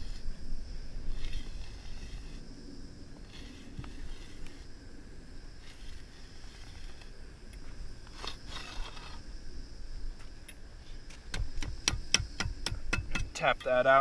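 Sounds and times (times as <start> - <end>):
auger scraping through sand: 0.0 - 7.2, 8.0 - 9.3.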